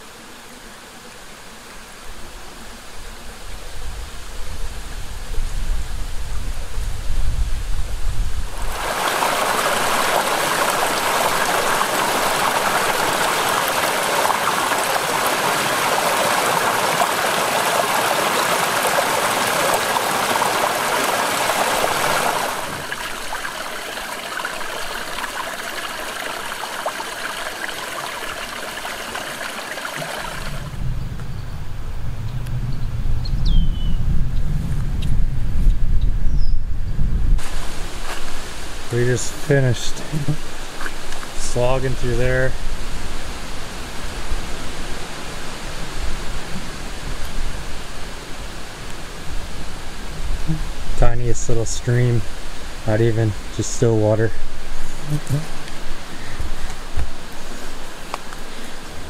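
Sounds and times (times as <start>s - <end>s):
stream rushing over rocks: 8.4s - 30.8s, 37.4s - 59.0s.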